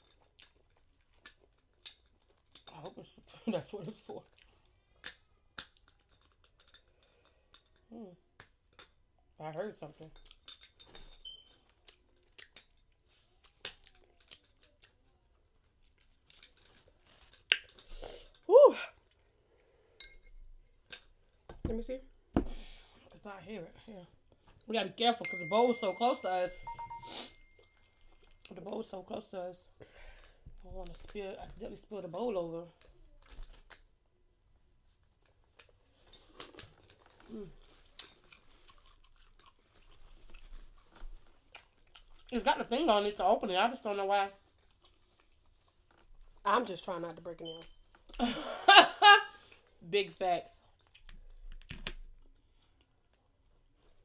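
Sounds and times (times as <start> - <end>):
wet mouth clicks and smacks: 11.3 - 15.0, 17.4 - 17.9.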